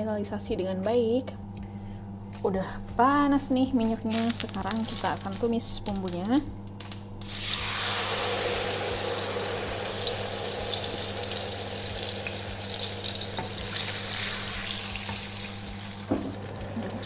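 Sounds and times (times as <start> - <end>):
paste sizzling in hot oil: 7.2 - 16.1.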